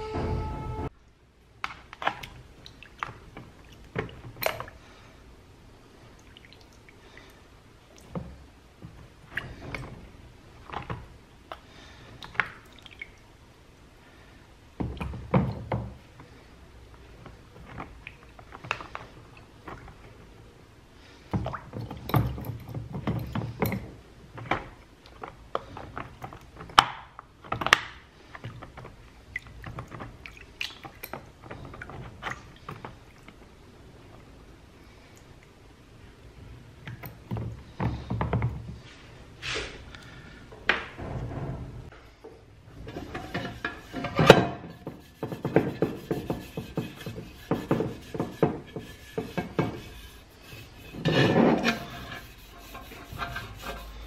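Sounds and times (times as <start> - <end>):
water sloshing: 42.7 - 54.0.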